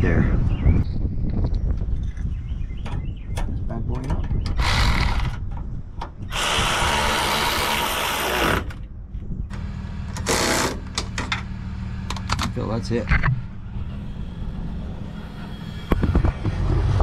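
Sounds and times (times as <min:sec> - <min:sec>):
cordless electric ratchet whirring: 0:04.6 - 0:05.4, 0:06.3 - 0:08.8.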